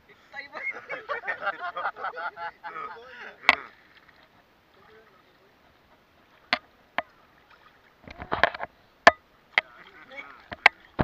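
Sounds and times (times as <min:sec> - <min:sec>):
sea water splashing on camera: 0:09.5 - 0:11.0.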